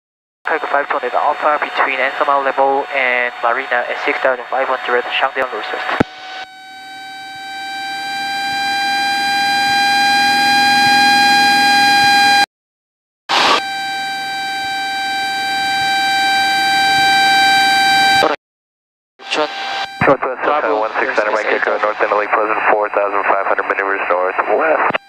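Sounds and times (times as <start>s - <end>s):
stall warning horn tone: 6.0s - 12.4s.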